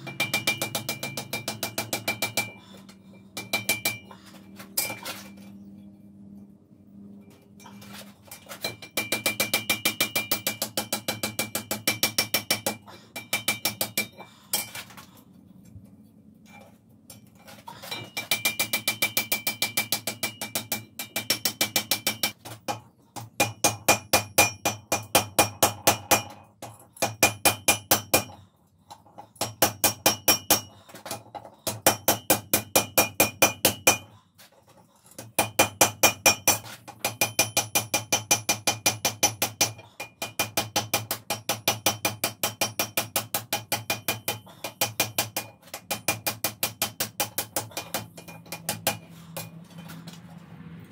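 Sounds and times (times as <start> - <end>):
hammer clanging on hot iron: 0.0 - 2.6, 3.3 - 4.1, 17.9 - 28.3, 35.2 - 49.6.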